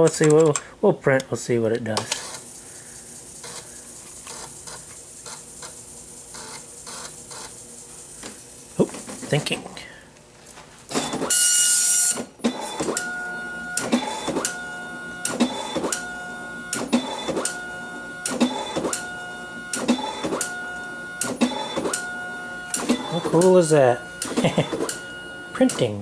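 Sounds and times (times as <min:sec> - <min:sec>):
dot matrix printer harsh burst: 0:02.0 - 0:09.5, 0:10.9 - 0:26.0
print head whine: 0:02.0 - 0:09.7, 0:10.9 - 0:26.0
print carriage click: 0:10.9 - 0:16.1, 0:16.7 - 0:17.6, 0:18.2 - 0:26.0.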